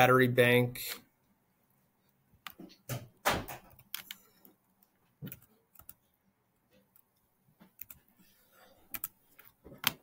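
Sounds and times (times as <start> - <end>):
mouse and keyboard clicks: 3.6 - 6.1, 6.8 - 8.2, 8.8 - 10.0.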